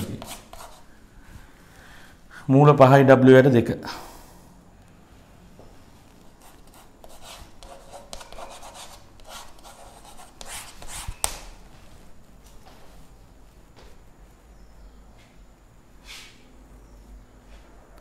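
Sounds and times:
chalk tap: 0.0 - 0.8, 6.4 - 11.5
chalk scratching on blackboard: 0.0 - 0.9, 6.4 - 11.5.

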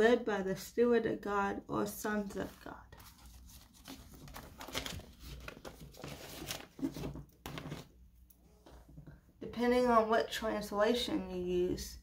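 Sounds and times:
paper rustling and crinkling: 2.3 - 7.9.

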